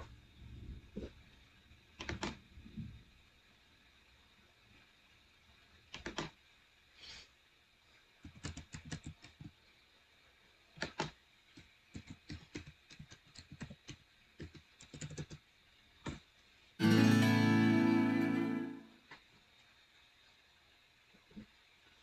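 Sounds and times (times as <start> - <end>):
typing on computer keyboard: 2.0 - 2.4, 5.9 - 6.3, 8.2 - 9.6, 10.8 - 11.2, 11.9 - 15.4.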